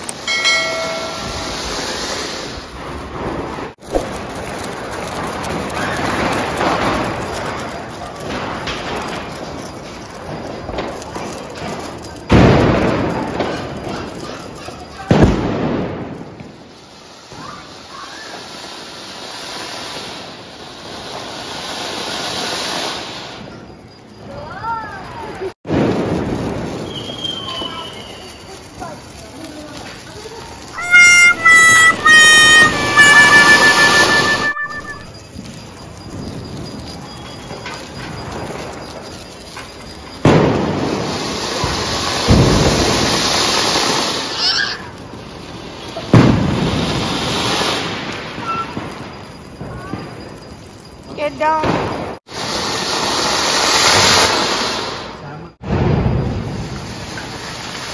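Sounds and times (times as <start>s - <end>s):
fountain fireworks hissing: 0.0s - 57.9s
sharp crack: 3.7s - 9.5s, 29.1s - 35.2s.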